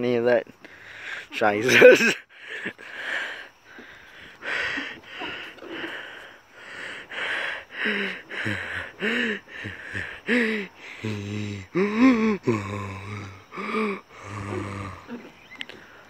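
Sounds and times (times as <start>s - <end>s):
hummed or grunted voice sounds: 7.8s - 15.3s.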